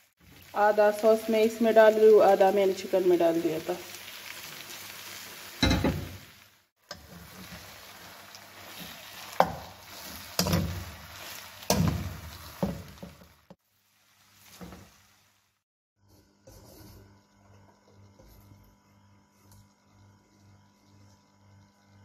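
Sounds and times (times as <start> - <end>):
spatula scraping a wok: 6.9 - 13.4, 16.0 - 17.2.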